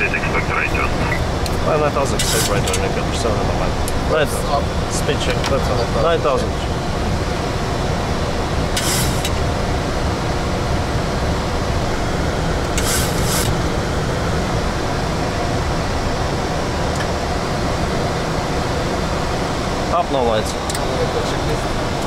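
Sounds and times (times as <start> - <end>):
faint engine hum: 0.0 - 22.0
cockpit air rush: 12.8 - 13.6.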